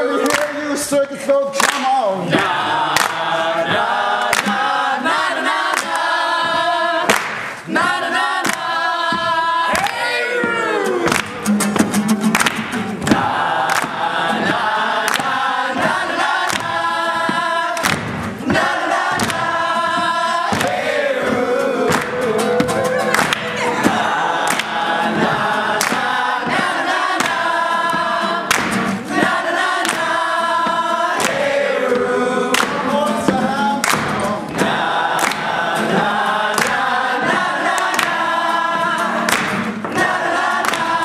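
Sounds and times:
group of voices singing: 0:00.0 - 0:11.6, 0:12.4 - 0:41.0
sharp percussive hits: 0:11.1 - 0:38.2.

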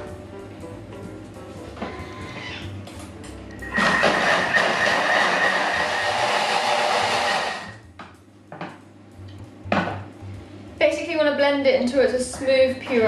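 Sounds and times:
blender whirring with high whine: 0:03.6 - 0:07.8.

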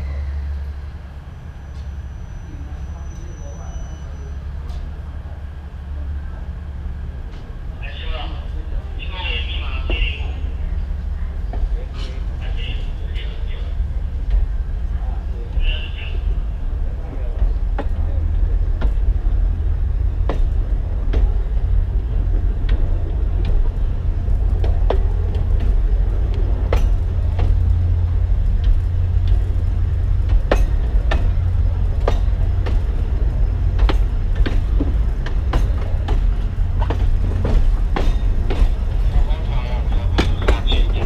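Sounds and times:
train low rumble: 0:00.0 - 0:41.0
wheels clicking over rail joints: 0:17.1 - 0:41.0.

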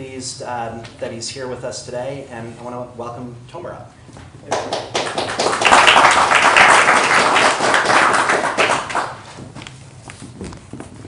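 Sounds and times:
audience applauding: 0:04.5 - 0:09.4.

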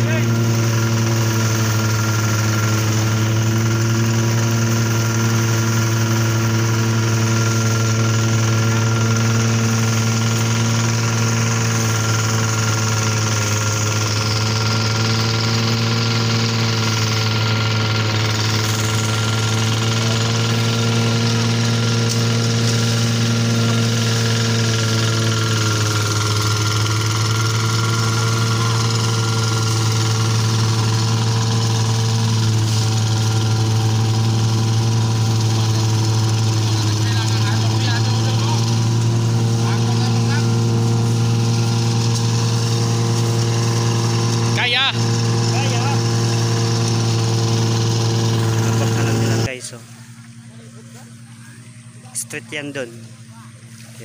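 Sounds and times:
small thresher engine running: 0:00.0 - 0:54.0.

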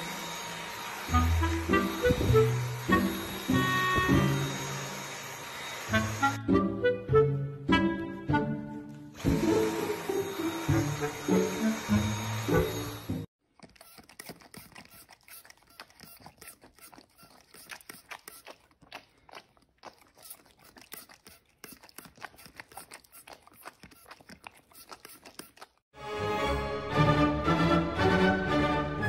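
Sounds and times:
music: 0:01.1 - 0:04.6, 0:06.0 - 0:13.3, 0:26.0 - 0:29.0
dog nibbling plastic trigger: 0:13.5 - 0:25.8.

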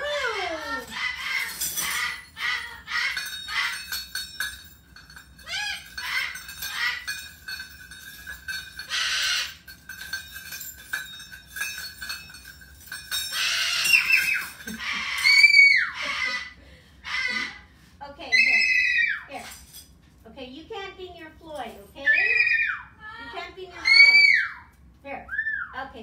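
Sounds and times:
cockatoo screeching: 0:00.0 - 0:04.0, 0:05.4 - 0:07.2, 0:08.9 - 0:09.6, 0:13.3 - 0:17.6, 0:18.3 - 0:19.3, 0:22.0 - 0:22.9, 0:23.7 - 0:24.7
metal toys clinking and jingling: 0:00.0 - 0:16.3, 0:18.4 - 0:20.2, 0:21.3 - 0:22.6
bell ringing: 0:01.4 - 0:14.8
cockatoo call: 0:13.3 - 0:17.6.

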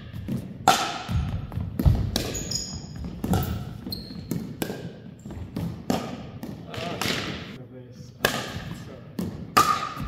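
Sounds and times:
paddles hitting plastic ball: 0:00.1 - 0:03.6
ball bouncing on wooden floor: 0:00.1 - 0:07.3
shoes squeaking on floor: 0:02.2 - 0:05.6.

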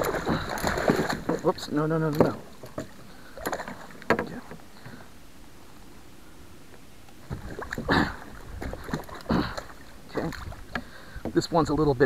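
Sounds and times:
fish thrashing and splashing water: 0:00.0 - 0:04.0, 0:07.3 - 0:10.7
faint steady hiss: 0:00.0 - 0:12.0.

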